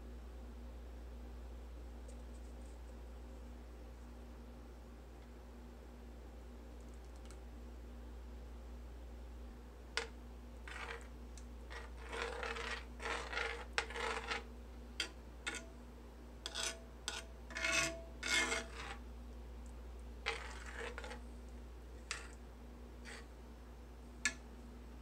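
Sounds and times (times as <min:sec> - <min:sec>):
metal spoon scraping skillet: 0:10.0 - 0:11.1, 0:11.7 - 0:15.7, 0:16.4 - 0:19.0, 0:20.2 - 0:21.3, 0:22.0 - 0:22.4, 0:23.0 - 0:23.3.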